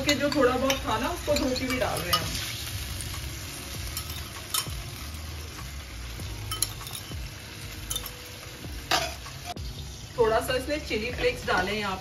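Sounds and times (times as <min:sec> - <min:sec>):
metal spatula stirring: 0:00.0 - 0:05.6, 0:06.4 - 0:07.2, 0:08.9 - 0:09.6
sauce sizzling in a wok: 0:00.0 - 0:12.0.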